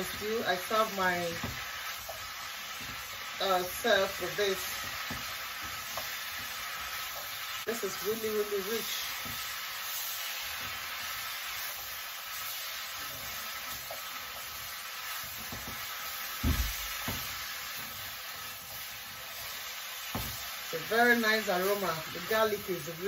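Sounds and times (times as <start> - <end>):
vegetables sizzling in a wok: 0.0 - 23.0
spatula knocking on a pan: 16.4 - 17.4, 20.1 - 20.4.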